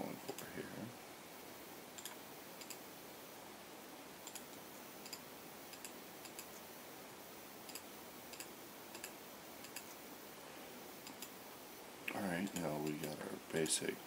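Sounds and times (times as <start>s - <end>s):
steady low hiss: 0.0s - 14.0s
mouse and keyboard clicks: 2.0s - 2.8s, 4.2s - 6.6s, 7.7s - 10.0s.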